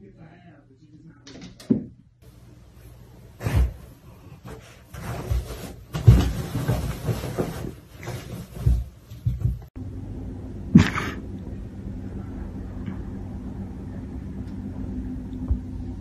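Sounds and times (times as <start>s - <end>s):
rustling: 2.8s - 9.7s.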